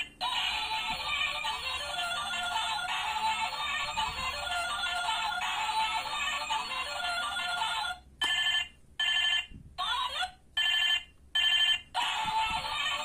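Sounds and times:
toy phone electronic tune: 5.0s - 9.5s, 10.6s - 13.0s
electronic ringtone bursts: 8.2s - 9.5s, 10.6s - 12.2s.

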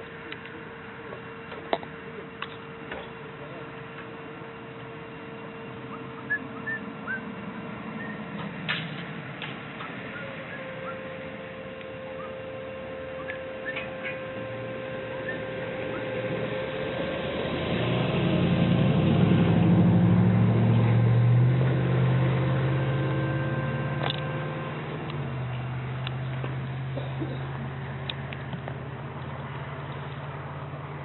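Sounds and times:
diesel locomotive engines passing: 0.0s - 31.0s
thin steady high tone: 9.9s - 18.1s, 22.1s - 25.3s.

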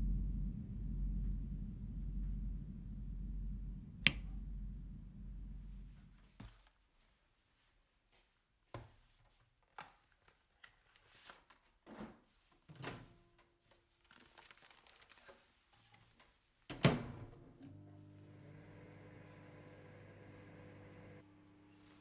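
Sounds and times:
popcorn packet crinkling: 14.0s - 15.6s.

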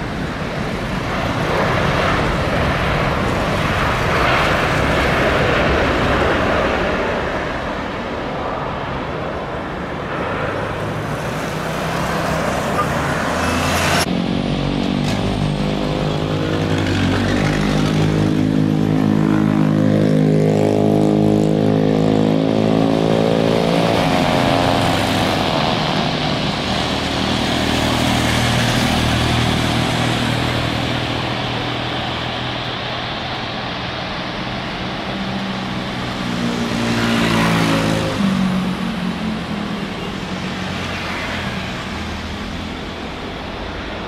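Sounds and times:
airliner passing with rushing roar: 0.0s - 44.0s
jet engines droning: 0.0s - 44.0s.

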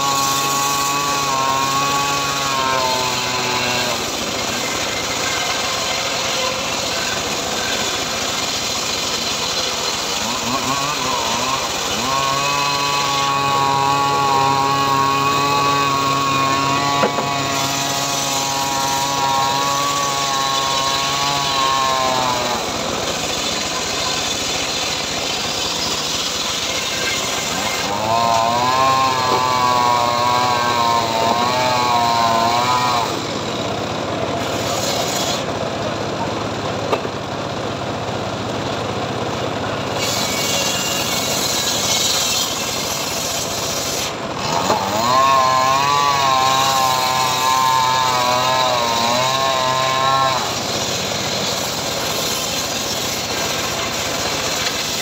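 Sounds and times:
saw blade whining in wood: 0.0s - 37.5s, 38.9s - 55.0s
sawmill machine running: 0.0s - 55.0s.

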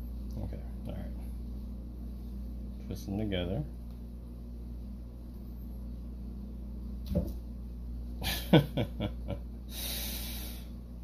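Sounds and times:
low electrical hum: 0.0s - 11.0s
breathy exhale: 9.7s - 10.7s.

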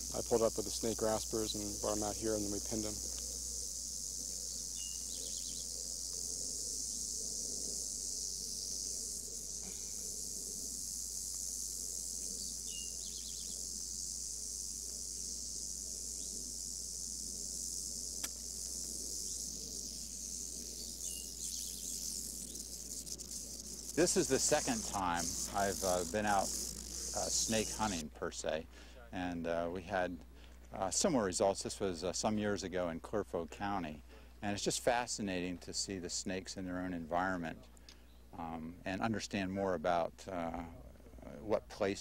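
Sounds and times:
rattlesnake rattling: 0.0s - 28.0s.

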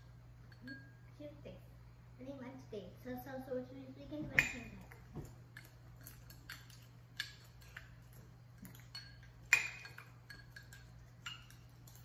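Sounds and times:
spoons clinking on ceramic bowls: 0.4s - 1.0s, 4.4s - 12.0s.

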